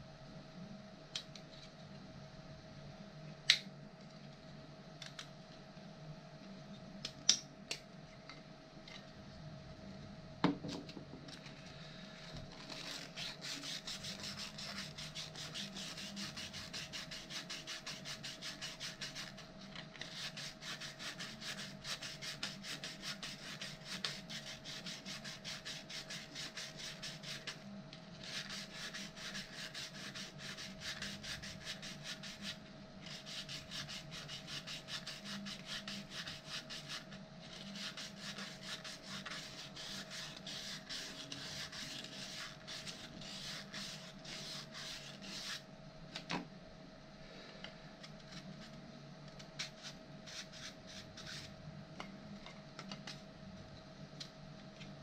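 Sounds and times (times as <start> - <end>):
faint steady hum: 0.0 - 55.0
sanding plastic back and forth: 12.5 - 19.4, 20.0 - 27.6, 28.2 - 45.6, 49.6 - 51.5.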